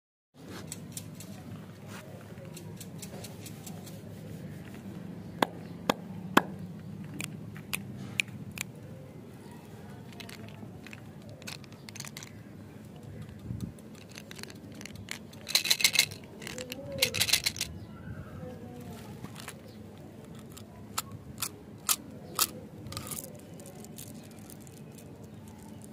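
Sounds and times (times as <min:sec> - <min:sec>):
candies rattling in container: 0:10.1 - 0:12.4, 0:13.9 - 0:17.7, 0:20.3 - 0:25.9.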